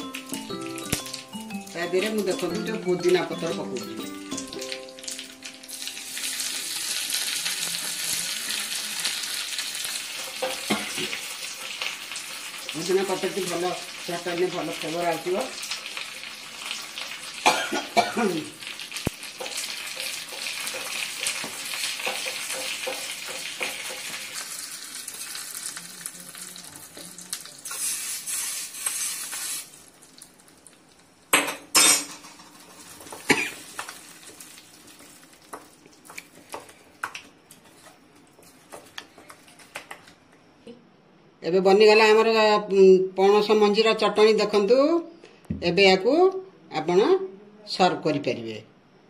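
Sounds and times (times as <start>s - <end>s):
spices sizzling in hot oil: 0.0s - 31.1s, 31.7s - 37.2s.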